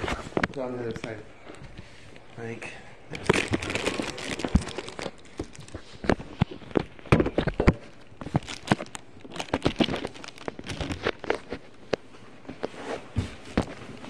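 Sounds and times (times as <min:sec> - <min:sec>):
person shuffling around: 0:00.0 - 0:07.1, 0:10.5 - 0:14.0.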